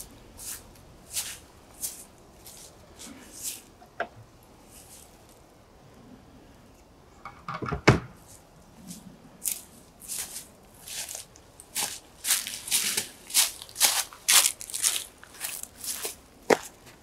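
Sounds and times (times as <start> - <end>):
footsteps on dry leaves: 0.0 - 3.8, 8.3 - 17.0.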